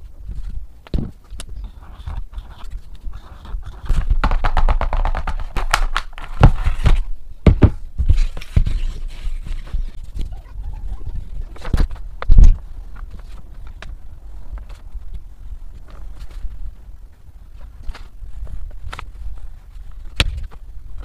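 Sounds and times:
box knocking on tabletop: 0:04.2 - 0:05.8.

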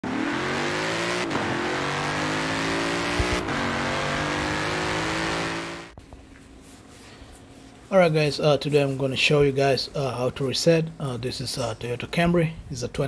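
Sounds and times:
car engine accelerating: 0:00.0 - 0:06.0.

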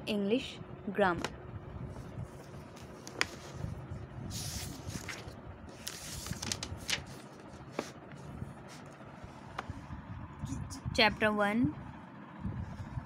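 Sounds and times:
paper pages rustling: 0:02.0 - 0:08.9.

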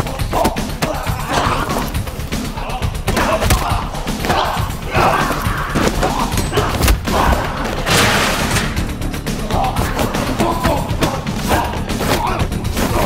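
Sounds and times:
punches and body hits: 0:03.0 - 0:07.5.

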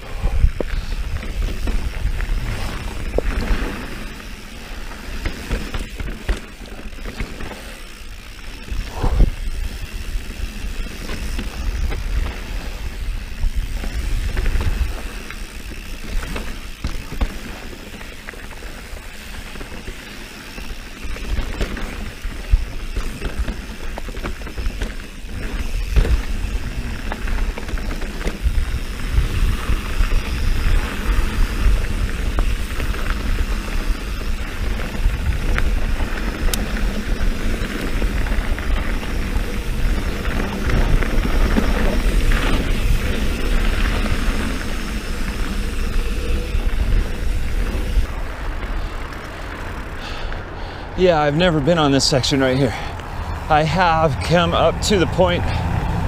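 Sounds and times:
bike rattling over bumps: 0:00.0 - 0:56.0
bike tyres rolling on dirt: 0:00.0 - 0:56.0.

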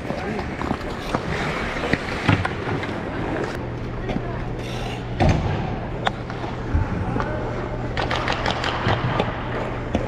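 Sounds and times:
ice skates scraping on ice: 0:00.0 - 0:02.1
steady low hum: 0:00.0 - 0:10.0.

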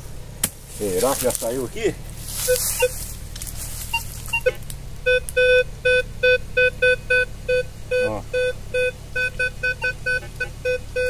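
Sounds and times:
metal detector beeping: 0:02.4 - 0:03.1, 0:03.8 - 0:11.0.

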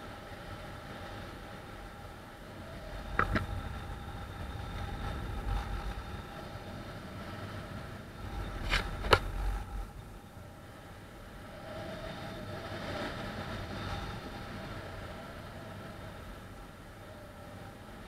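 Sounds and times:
wind rushing on microphone: 0:00.0 - 0:18.0.

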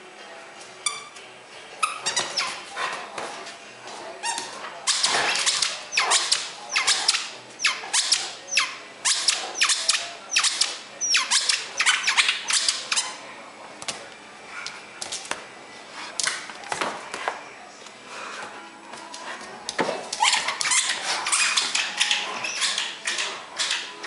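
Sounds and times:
dog toy squeaks: 0:01.8 - 0:02.6, 0:04.2 - 0:13.2, 0:20.2 - 0:23.9.

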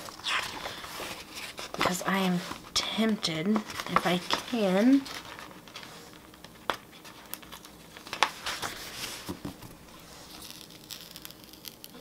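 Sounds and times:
paper crinkles and rustles: 0:00.0 - 0:12.0.

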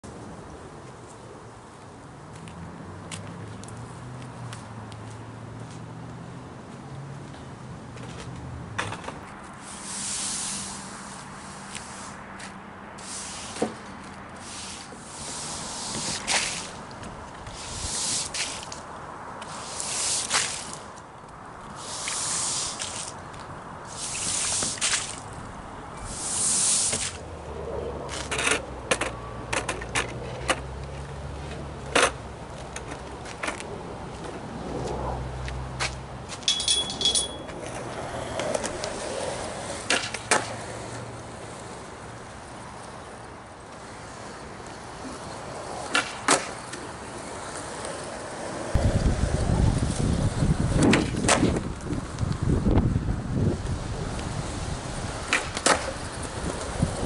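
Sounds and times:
push broom swishing on wet pavement: 0:09.3 - 0:28.6
skateboards clacking together: 0:45.8 - 0:47.0, 0:55.2 - 0:56.8.

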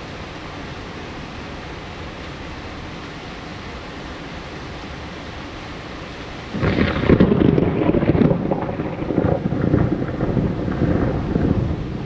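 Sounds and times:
thunder crackling and rumbling: 0:06.5 - 0:12.0.

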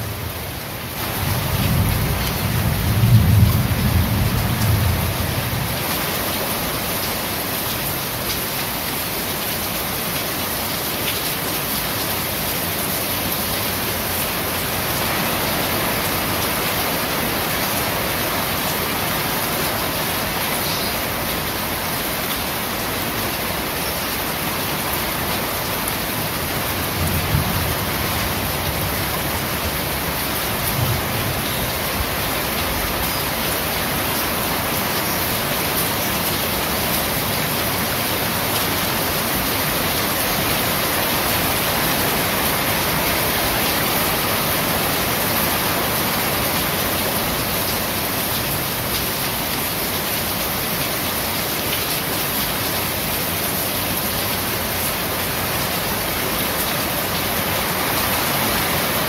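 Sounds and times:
rain on corrugated roofing: 0:00.0 - 0:59.0
low thunder rumble: 0:01.1 - 0:05.8, 0:26.9 - 0:30.0.

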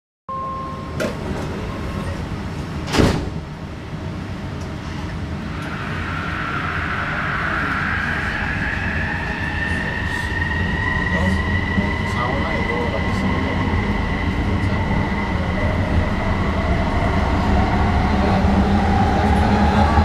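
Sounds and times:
loud thump: 0:02.9 - 0:03.4.

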